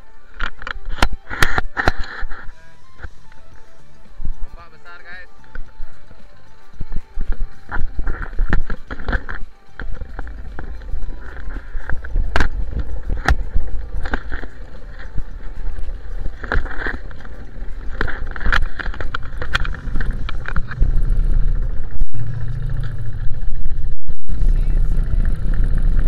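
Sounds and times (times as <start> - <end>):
knocks of hull and rigging: 6.9 - 23.9
low engine hum: 9.8 - 26.0
wind buffeting microphone: 9.9 - 26.0.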